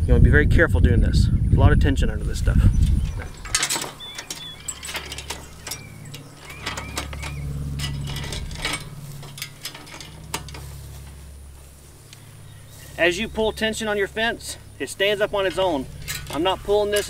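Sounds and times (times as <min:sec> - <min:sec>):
low rumble: 0:00.0 - 0:17.0
metal chain clicking: 0:02.8 - 0:11.2, 0:15.4 - 0:17.0.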